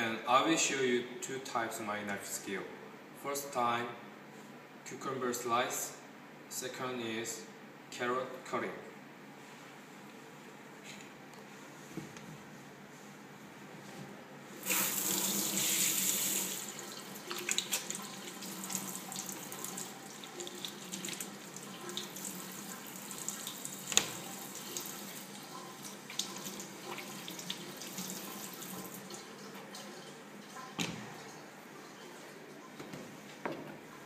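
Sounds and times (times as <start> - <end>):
tap water running into sink: 14.6 - 31.3.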